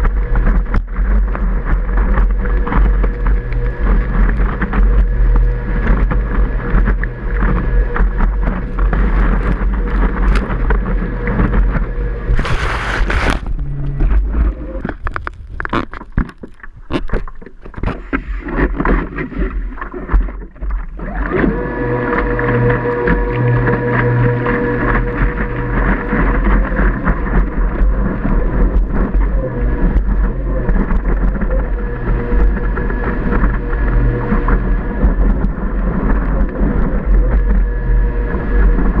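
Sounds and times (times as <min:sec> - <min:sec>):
rushing water: 0:00.0 - 0:39.0
water slapping board: 0:00.0 - 0:39.0
water splashing: 0:00.0 - 0:39.0
jet drive motor whining: 0:21.0 - 0:27.0, 0:31.3 - 0:38.9.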